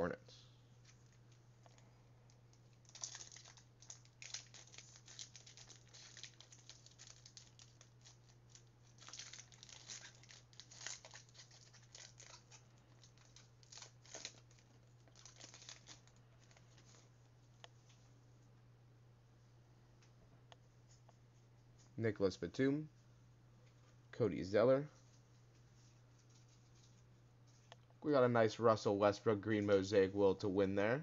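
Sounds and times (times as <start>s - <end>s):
steady low hum: 0.0s - 31.0s
wrappers crinkling and tearing: 2.7s - 17.0s.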